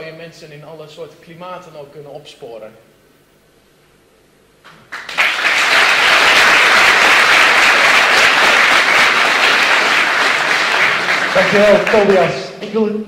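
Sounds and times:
audience applauding: 0:04.7 - 0:12.5.

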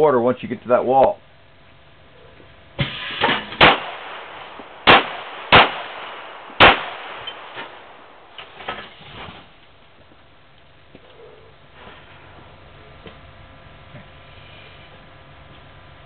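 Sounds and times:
handgun shots with echo: 0:02.8 - 0:08.0.

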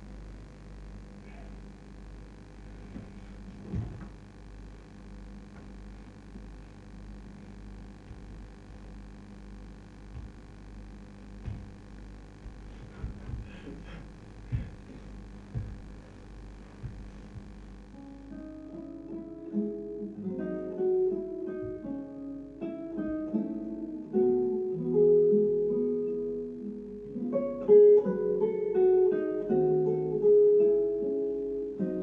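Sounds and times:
low electrical hum: 0:00.0 - 0:32.0
soft thuds of dancers' feet: 0:02.6 - 0:04.4, 0:05.4 - 0:06.8, 0:07.4 - 0:18.0, 0:21.6 - 0:22.0
plucked guitar notes: 0:16.8 - 0:32.0.

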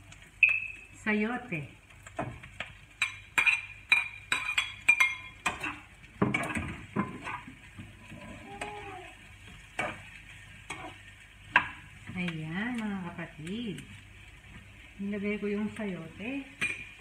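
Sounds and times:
light sizzle of frying: 0:00.0 - 0:17.0
metal spatula clinking and scraping: 0:03.0 - 0:06.6.

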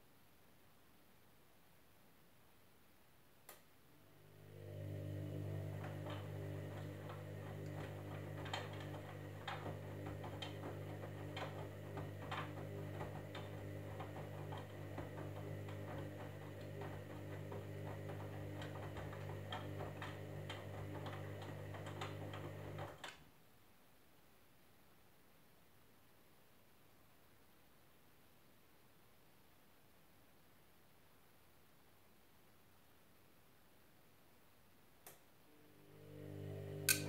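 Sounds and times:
washing machine motor humming: 0:04.0 - 0:23.1, 0:35.5 - 0:37.0.

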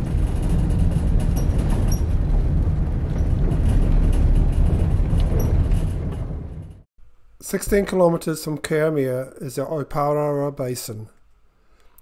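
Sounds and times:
tyre and engine rumble: 0:00.0 - 0:06.9.

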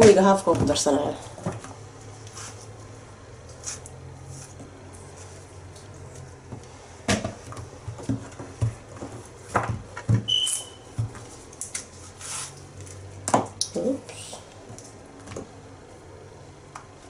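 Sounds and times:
low steady hum: 0:00.0 - 0:17.0
brief high squeak: 0:10.3 - 0:10.9.

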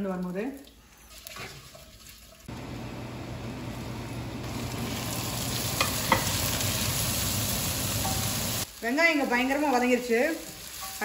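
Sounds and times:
onions sizzling in hot oil: 0:02.4 - 0:11.0.

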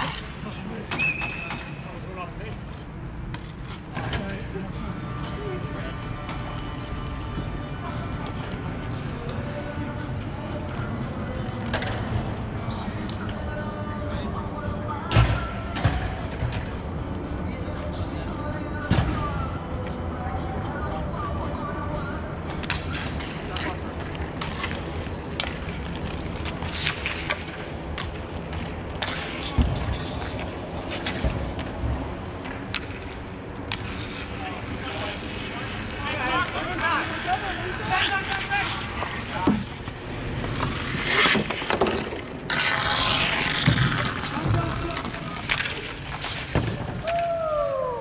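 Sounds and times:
skate wheels rolling and scraping: 0:00.0 - 0:48.0
hockey sticks and puck clacking: 0:22.4 - 0:31.7, 0:32.4 - 0:47.3
rink noise: 0:33.7 - 0:46.8.

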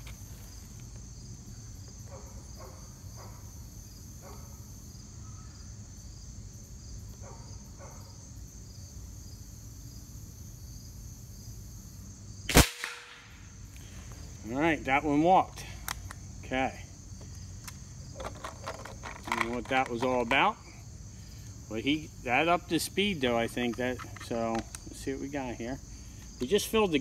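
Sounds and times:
insects chirping: 0:00.0 - 0:27.0
air rifle shot: 0:12.5 - 0:13.4.

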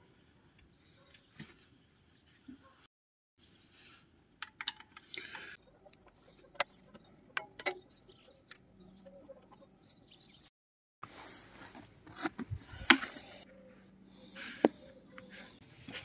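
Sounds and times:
metallic clicks and taps: 0:04.4 - 0:05.3.

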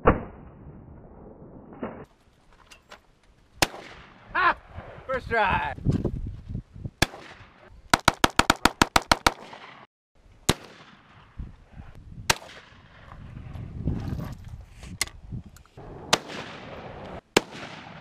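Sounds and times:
gunshots: 0:03.6 - 0:04.2, 0:07.0 - 0:09.9, 0:10.5 - 0:11.2, 0:16.1 - 0:18.0.

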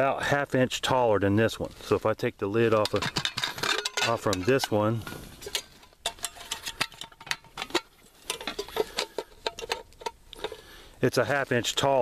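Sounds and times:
metal pots clicking and knocking: 0:02.6 - 0:10.8.

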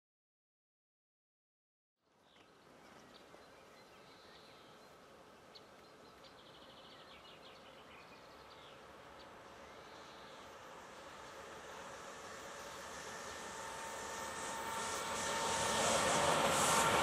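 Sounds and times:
small birds chirping: 0:02.1 - 0:11.3
distant train rumble: 0:07.6 - 0:17.0.

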